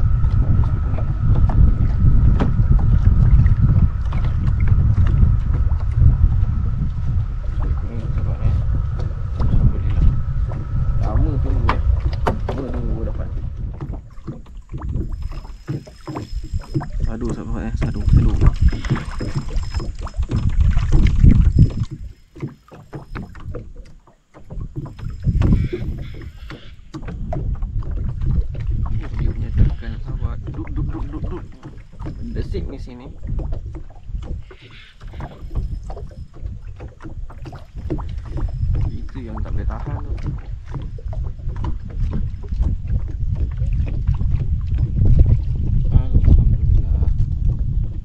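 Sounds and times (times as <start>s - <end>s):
thin steady high tone: 0.0s - 13.4s, 15.1s - 23.3s
low rumble: 0.0s - 22.4s, 27.1s - 48.0s
water slapping against boat hull: 0.0s - 48.0s
wind buffeting microphone: 0.0s - 48.0s.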